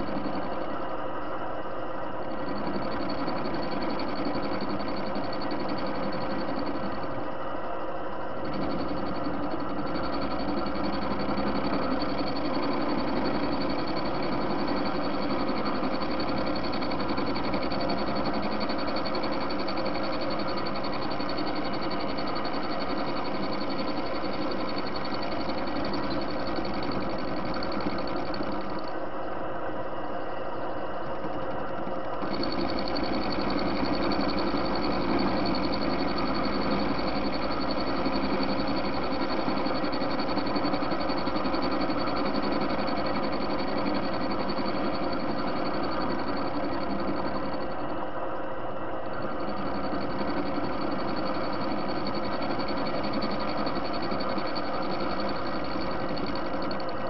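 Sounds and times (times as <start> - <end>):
lathe motor humming: 31.1 - 47.9.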